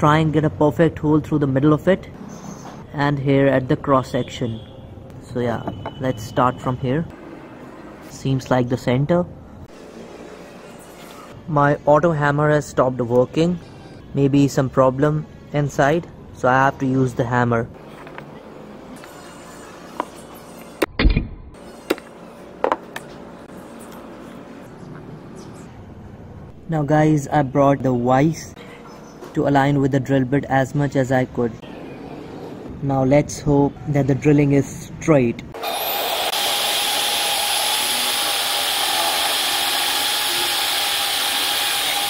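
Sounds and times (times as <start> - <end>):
drill bit cutting into metal: 35.6 - 42.0
drill press motor whining: 35.6 - 42.0.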